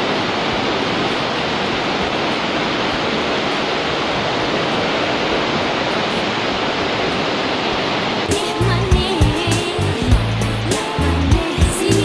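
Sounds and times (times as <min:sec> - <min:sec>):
underground stream rushing: 0:00.0 - 0:12.0.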